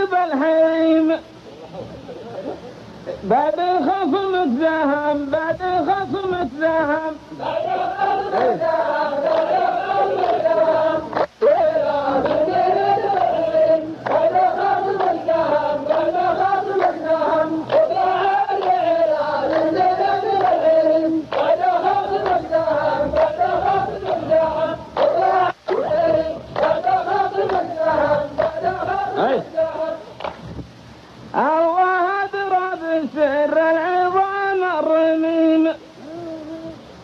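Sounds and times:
men chanting together: 3.3 - 30.0.

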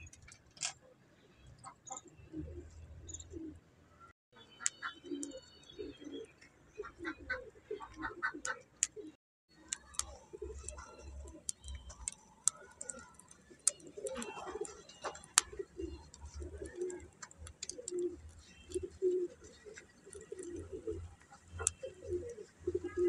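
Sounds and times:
sharp clicks and crackles: 0.0 - 0.8, 7.9 - 23.0
doves cooing: 4.8 - 23.0.

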